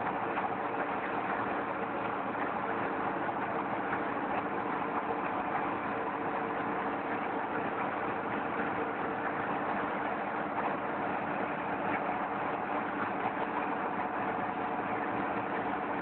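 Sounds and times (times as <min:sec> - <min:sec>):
engine hum: 0:00.0 - 0:16.0.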